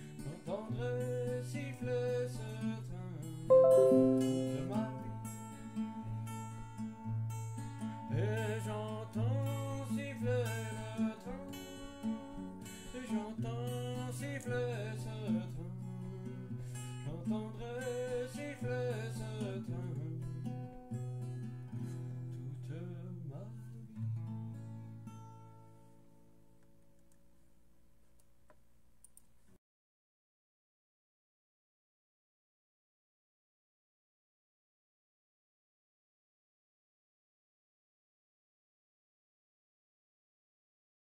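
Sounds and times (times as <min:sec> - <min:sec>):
acoustic guitar: 0:00.0 - 0:05.2, 0:06.2 - 0:26.4
wavering melody line: 0:03.5 - 0:05.0.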